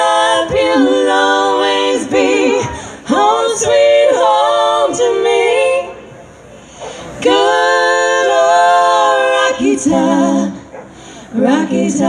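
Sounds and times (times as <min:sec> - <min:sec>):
women singing in harmony: 0:00.0 - 0:12.0.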